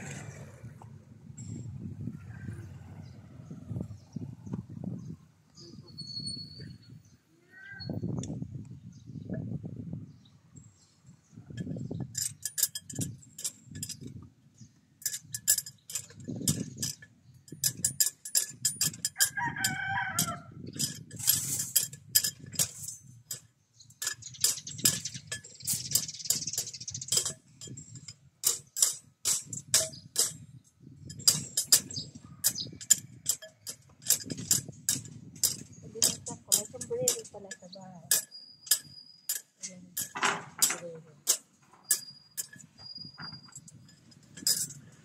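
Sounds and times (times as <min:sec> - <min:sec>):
sharp clicks and knocks: 0:15.0 - 0:45.0
rooster crowing: 0:19.2 - 0:20.5.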